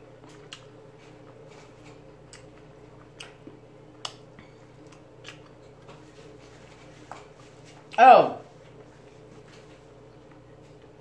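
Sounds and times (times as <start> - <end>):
sucking and chewing meat: 0.0 - 11.0
wet mouth clicks and smacks: 2.3 - 5.6.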